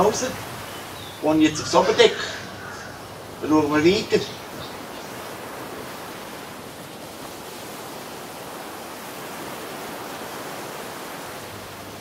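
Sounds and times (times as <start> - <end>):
steady hiss: 0.0 - 5.2.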